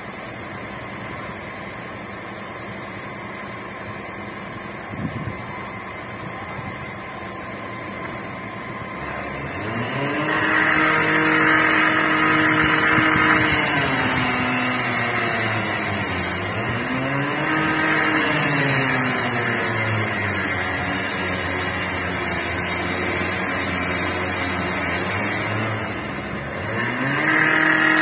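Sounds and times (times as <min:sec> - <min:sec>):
steady drone: 0:00.0 - 0:28.0
vehicle engine revving: 0:08.0 - 0:28.0.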